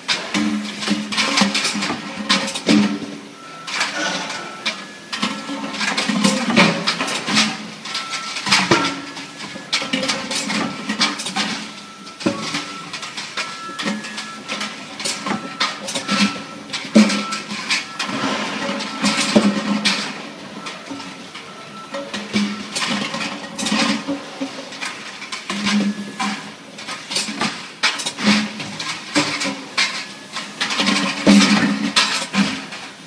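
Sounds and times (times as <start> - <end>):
metal pails clanking: 0.0 - 33.0
high machine whine: 3.3 - 5.7.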